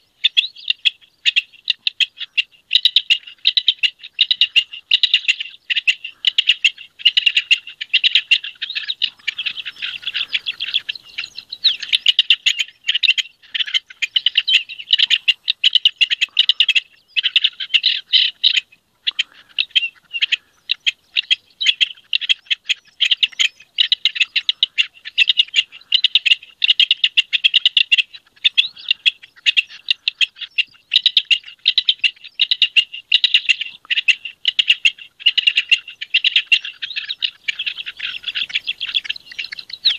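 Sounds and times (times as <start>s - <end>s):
partridge singing rapid notes: 0.0s - 39.9s.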